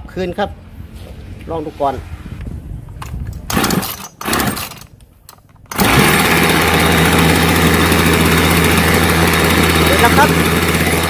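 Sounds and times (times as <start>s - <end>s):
starter cord pulls: 3.0s - 11.0s
chainsaw engine idling: 3.5s - 4.8s, 5.7s - 11.0s.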